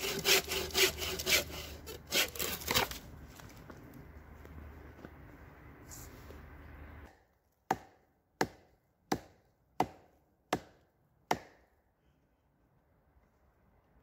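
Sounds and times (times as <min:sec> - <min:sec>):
bow saw rasping through log: 0:00.0 - 0:02.9.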